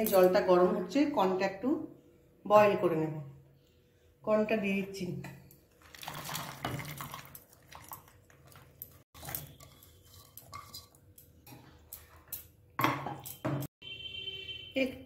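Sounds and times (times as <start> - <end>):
kernels and utensils tapping pot: 0.0 - 0.4, 6.7 - 13.8
corn kernels poured into water: 5.8 - 8.1.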